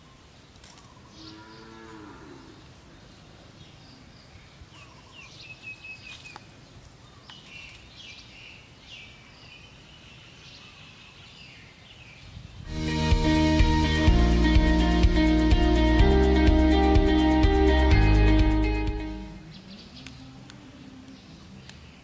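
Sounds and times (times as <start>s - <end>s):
small birds chirping: 0.0s - 12.7s, 19.3s - 22.0s.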